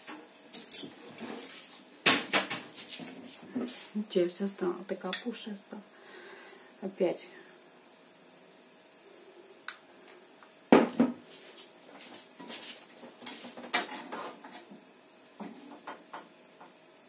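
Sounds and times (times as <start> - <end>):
frying pan and utensils clanking: 13.2 - 14.7.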